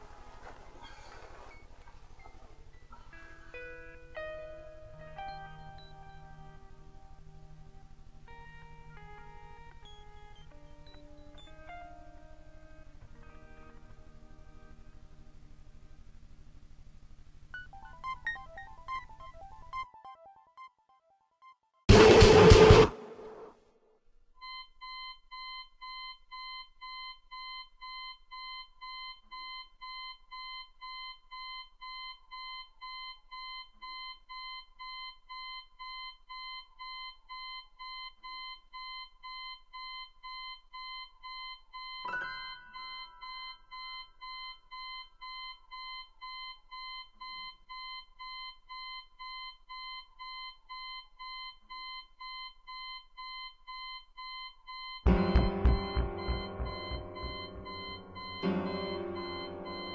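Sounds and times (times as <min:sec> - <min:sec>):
alarm clock beeping: 0:24.4 - 0:59.9.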